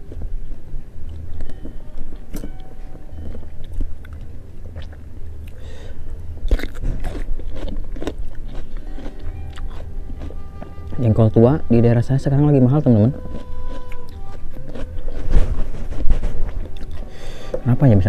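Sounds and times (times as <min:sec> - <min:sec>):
chewing and biting food: 0:03.2 - 0:05.6, 0:06.4 - 0:11.0, 0:12.8 - 0:17.1.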